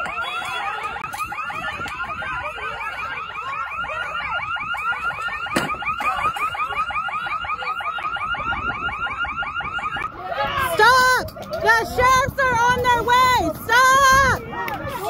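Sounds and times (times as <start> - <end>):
electronic alarm siren warbling: 0.0 - 11.3.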